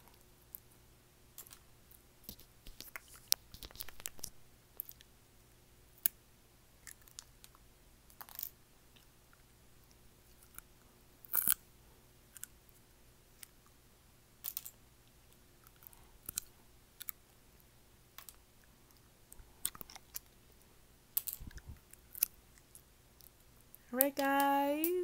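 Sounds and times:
teeth clicking on acrylic nails: 11.3 - 11.6, 15.6 - 17.2, 19.6 - 20.3.

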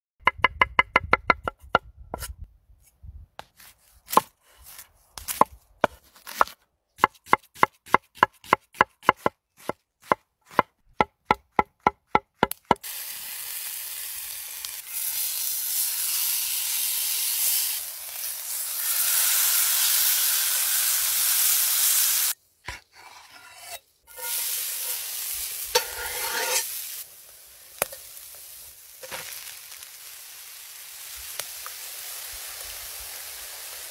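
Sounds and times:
knife chopping on wooden board: 5.2 - 12.8
food sizzling in a pan: 12.8 - 22.4, 24.1 - 33.9.

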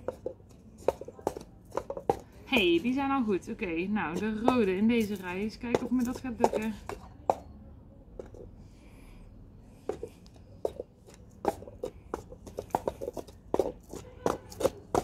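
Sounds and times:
paper cups tapping on wooden table: 0.0 - 3.0.

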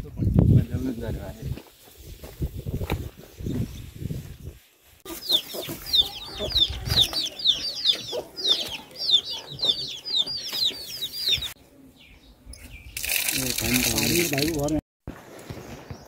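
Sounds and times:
chicks peeping: 5.1 - 12.4.

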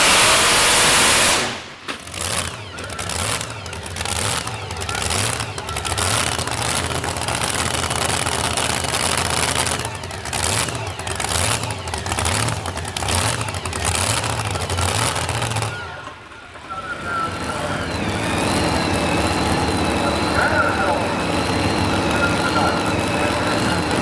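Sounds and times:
loud rough truck engine: 0.0 - 24.0
whistling engine: 9.4 - 24.0.

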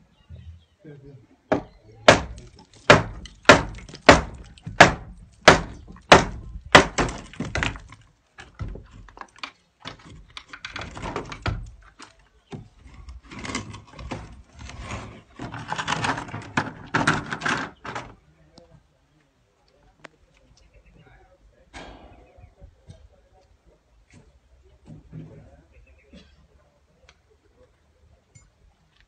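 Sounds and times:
heavy sharp knocks: 1.5 - 7.8
scraping noise: 12.8 - 17.4.

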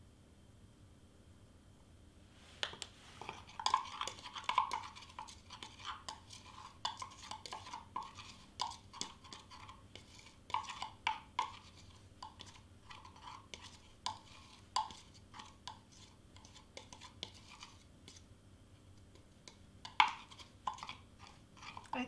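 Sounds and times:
metal spoon scraping glass jar: 3.2 - 17.8, 19.8 - 22.0.

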